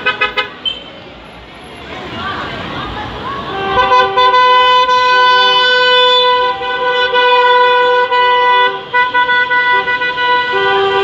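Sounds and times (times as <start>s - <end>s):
vehicle horns honking: 0.0s - 1.0s, 3.4s - 11.0s.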